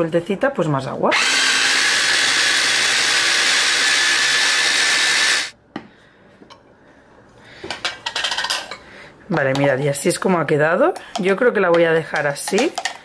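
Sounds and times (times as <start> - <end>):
electric chopper motor running: 1.1 - 5.5.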